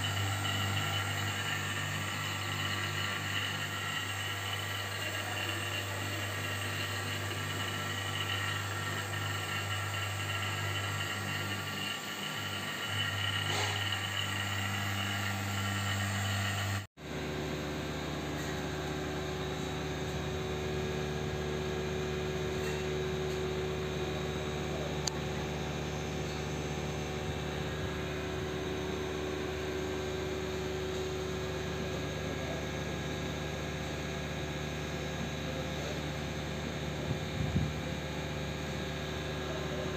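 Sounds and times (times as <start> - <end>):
air conditioner unit humming: 0.0 - 17.7.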